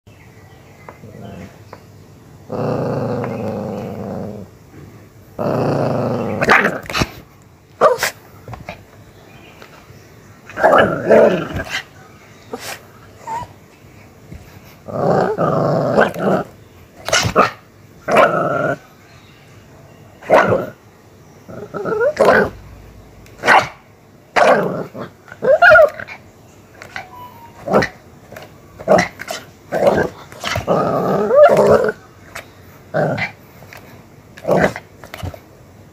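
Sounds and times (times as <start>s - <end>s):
dog growling: 2.5s - 4.5s, 5.4s - 7.2s, 10.5s - 11.8s, 14.8s - 17.4s, 21.5s - 22.7s, 24.4s - 26.2s, 28.8s - 32.0s
small dog barking fiercely: 7.8s - 8.2s, 17.0s - 18.4s, 20.2s - 20.8s, 23.4s - 26.2s
dog barking: 23.4s - 23.8s.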